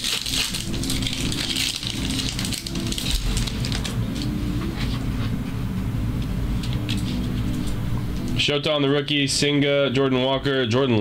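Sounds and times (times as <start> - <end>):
foil wrappers crinkling: 0.0 - 5.0
cards rustling: 0.0 - 5.3.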